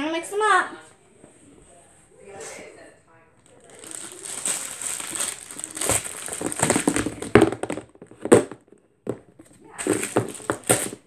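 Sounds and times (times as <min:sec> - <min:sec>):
plastic tubs clattering on wooden floor: 0:03.8 - 0:11.0.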